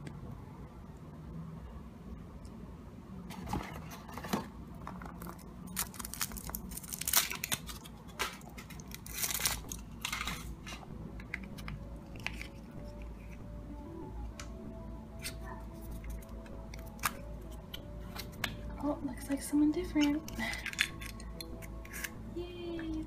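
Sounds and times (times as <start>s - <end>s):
chocolate shell cracking: 5.1s - 10.6s, 11.2s - 13.4s, 15.2s - 18.7s, 19.9s - 22.2s
foil wrapper crinkling: 5.1s - 10.7s.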